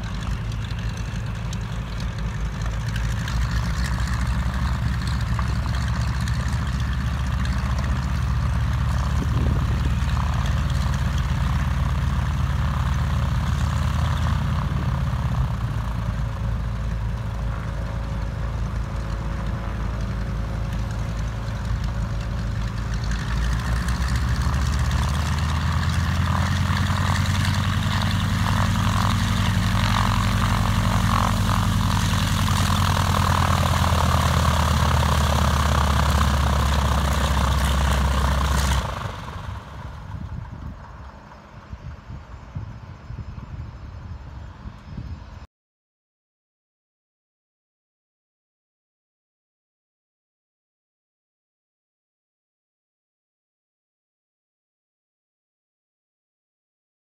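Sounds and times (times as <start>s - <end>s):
radial aircraft engine idling: 0.0s - 45.5s.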